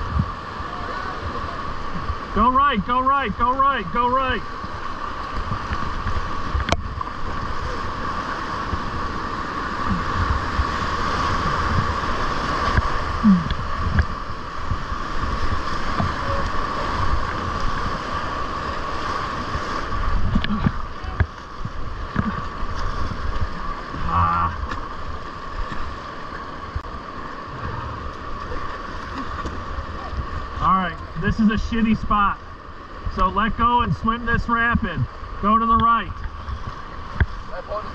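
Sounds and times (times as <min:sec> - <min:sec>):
wind on microphone: 0:00.0 - 0:02.3, 0:04.6 - 0:25.9
low rumbling of water: 0:00.0 - 0:37.9
whitewater rushing: 0:00.0 - 0:37.9.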